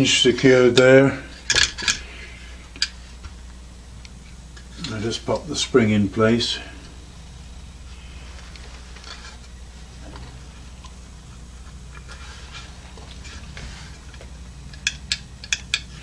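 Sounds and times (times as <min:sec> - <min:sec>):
steady low hum: 0:00.0 - 0:16.0
faint handling sounds: 0:06.5 - 0:16.0.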